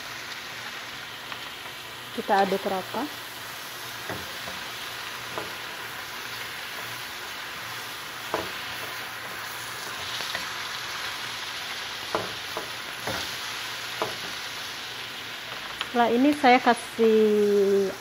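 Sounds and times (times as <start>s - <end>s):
vegetables sizzling in oil: 0.0s - 18.0s
wooden spatula knocking pan: 8.2s - 8.7s, 12.1s - 13.3s, 13.9s - 14.3s.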